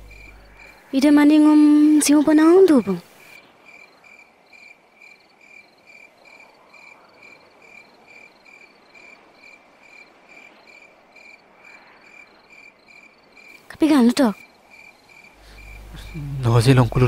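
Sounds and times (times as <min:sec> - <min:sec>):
insect chirping: 0:00.0 - 0:17.0
low background hiss: 0:00.0 - 0:17.0.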